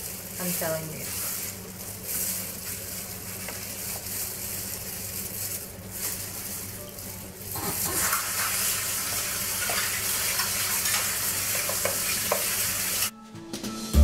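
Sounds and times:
gloved hand squelching cabbage: 0:00.0 - 0:09.9.

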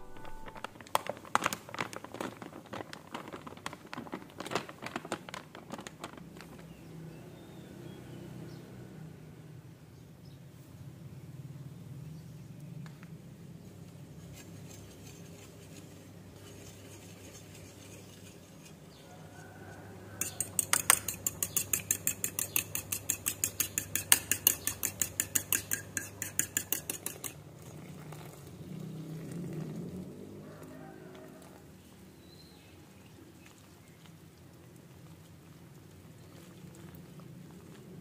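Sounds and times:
fork clinking against bowl: 0:20.2 - 0:27.4.

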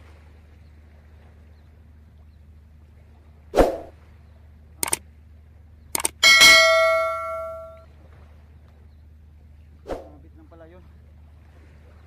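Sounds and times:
sharp clicks: 0:06.0 - 0:06.2
ringing metallic clang: 0:06.0 - 0:07.8.

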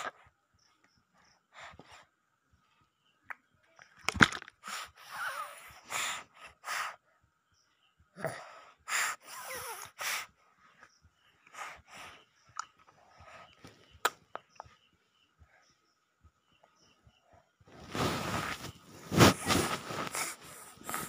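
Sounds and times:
wheezy gasps and puffs: 0:04.6 - 0:07.1, 0:08.1 - 0:10.8, 0:11.4 - 0:13.7, 0:17.7 - 0:21.0.

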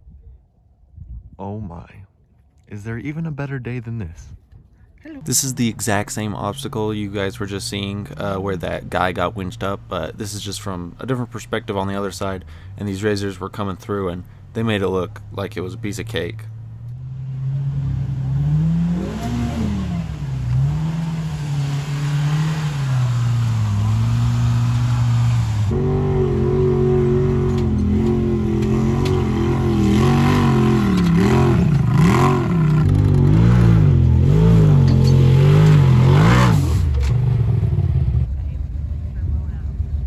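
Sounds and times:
engines revving up and down: 0:14.7 - 0:38.3.

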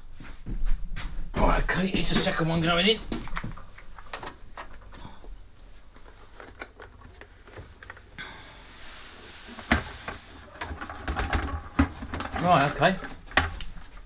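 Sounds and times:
grit pouring hiss: 0:08.2 - 0:10.5
plastic tub knocking on metal: 0:10.6 - 0:13.6.

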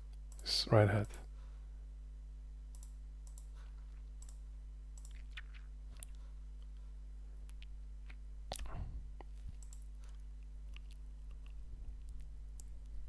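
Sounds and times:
steady low hum: 0:00.0 - 0:13.0
computer mouse clicks: 0:02.7 - 0:03.6, 0:04.2 - 0:04.4, 0:09.5 - 0:09.9.

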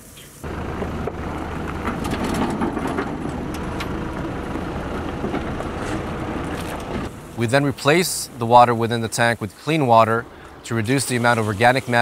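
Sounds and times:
tractor engine running: 0:00.4 - 0:11.4
light metal rattles: 0:00.5 - 0:07.4.

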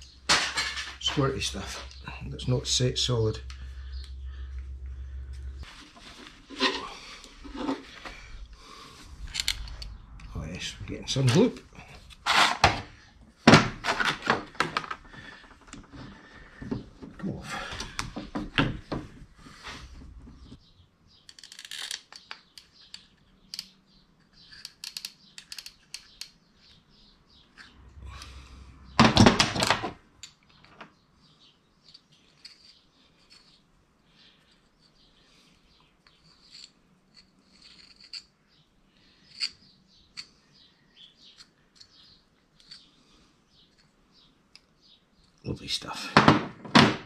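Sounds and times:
small birds chirping: 0:01.1 - 0:05.7, 0:18.8 - 0:29.0, 0:30.2 - 0:46.2
metal parts clicking: 0:09.2 - 0:10.3, 0:21.2 - 0:26.7, 0:31.8 - 0:33.6.

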